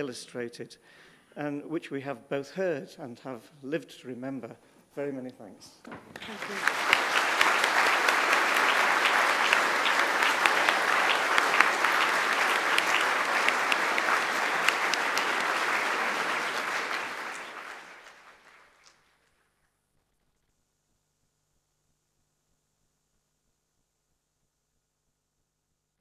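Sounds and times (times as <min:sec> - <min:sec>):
audience applauding: 0:05.9 - 0:19.1.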